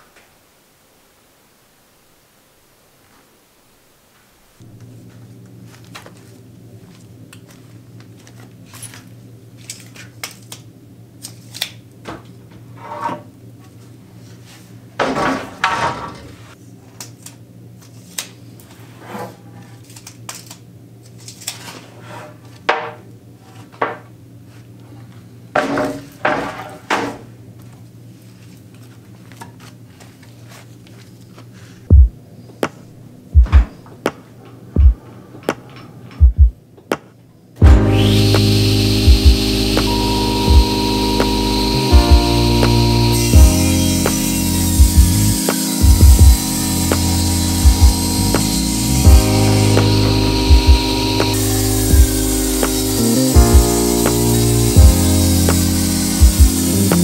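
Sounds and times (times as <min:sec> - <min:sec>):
heavy low thumps: 0:37.6 - 0:39.6, 0:40.5 - 0:40.7, 0:41.8 - 0:55.6, 0:56.2 - 0:57.0
steady low hum: 0:37.6 - 0:57.0.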